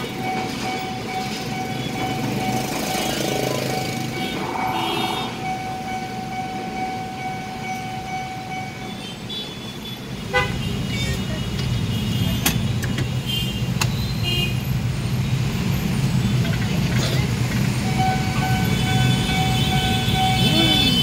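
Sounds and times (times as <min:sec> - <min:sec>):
motorbike and car engines rumbling: 0:00.0 - 0:08.9, 0:10.0 - 0:21.0
level crossing warning tone: 0:00.0 - 0:09.1, 0:17.8 - 0:21.0
horn toots: 0:02.9 - 0:05.9.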